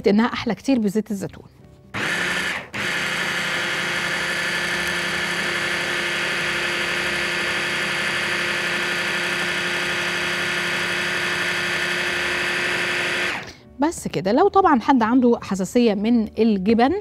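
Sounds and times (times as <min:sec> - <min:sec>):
food processor motor whirring: 0:02.0 - 0:13.6.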